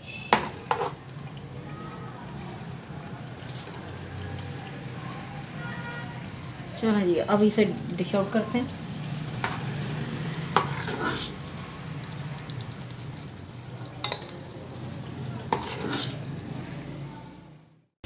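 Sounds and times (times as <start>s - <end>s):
ladle scraping a pot: 0.2s - 1.0s, 9.4s - 11.4s, 15.5s - 16.4s.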